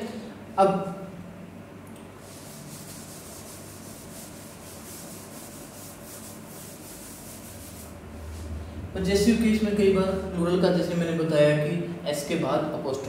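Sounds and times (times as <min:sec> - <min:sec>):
cloth wiping chalkboard: 0:02.2 - 0:08.6.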